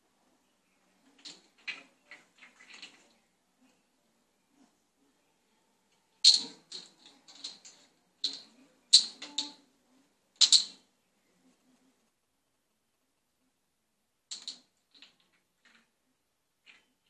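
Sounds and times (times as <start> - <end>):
plastic bottle cap clattering on tiles: 1.2 - 3.1, 6.2 - 9.6, 10.4 - 10.8, 14.3 - 15.9.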